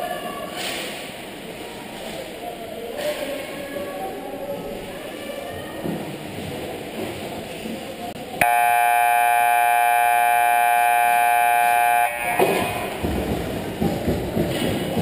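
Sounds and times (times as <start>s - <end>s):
scoreboard buzzer: 8.4s - 13.1s
ice skates and players: 12.4s - 15.0s.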